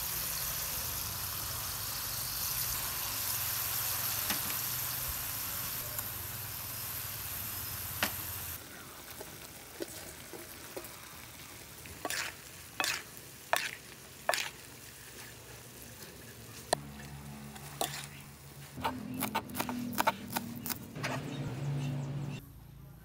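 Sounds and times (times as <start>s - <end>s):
food sizzling in a wok: 0.0s - 18.8s
metal spatula scraping pan: 12.0s - 15.3s, 16.1s - 18.2s
knife chopping on wooden board: 18.8s - 21.2s.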